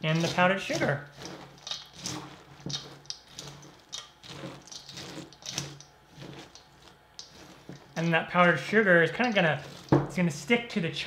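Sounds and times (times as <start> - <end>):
spatula scraping cereal in a bowl: 0.0 - 10.6.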